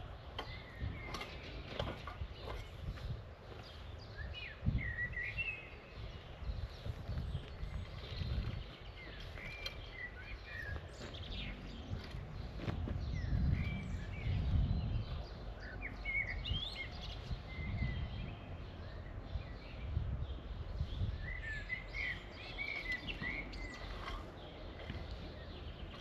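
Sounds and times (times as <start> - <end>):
small birds chirping: 0.0 - 26.0
rake scraping through soil: 23.6 - 25.1.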